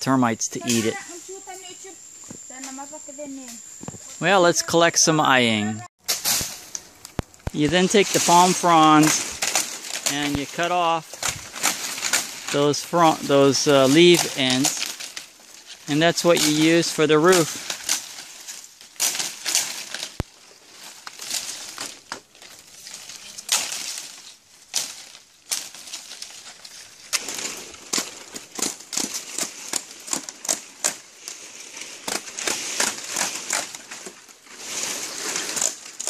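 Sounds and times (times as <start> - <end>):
stiff leaves rustling: 0.6 - 36.0
machete chopping: 27.1 - 31.0.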